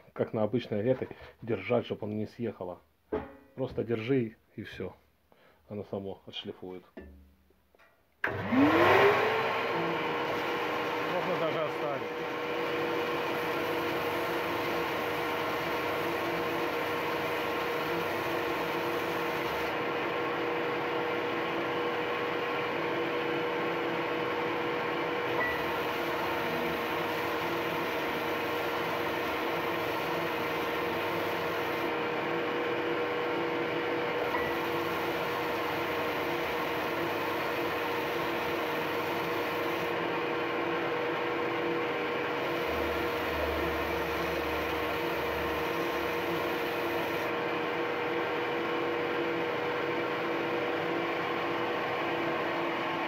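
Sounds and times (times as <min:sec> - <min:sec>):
belt sander humming: 0:08.3 - 0:19.9, 0:25.6 - 0:32.4, 0:34.2 - 0:40.2, 0:42.2 - 0:47.6.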